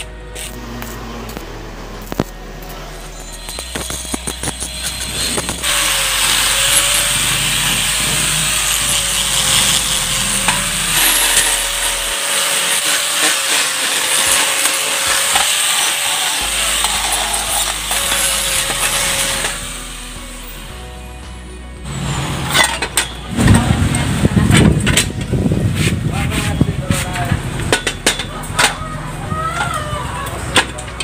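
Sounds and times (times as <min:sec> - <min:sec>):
arc welding crackle: 0:00.0 - 0:20.8
angle grinder grinding metal: 0:00.0 - 0:29.0.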